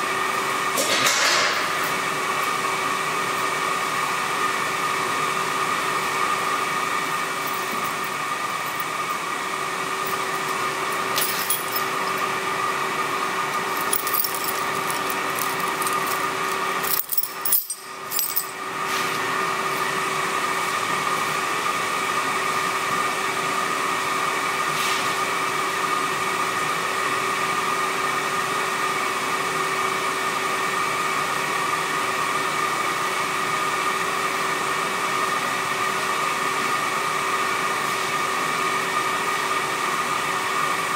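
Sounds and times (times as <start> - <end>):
electric blower fan whirring: 0.0 - 28.9.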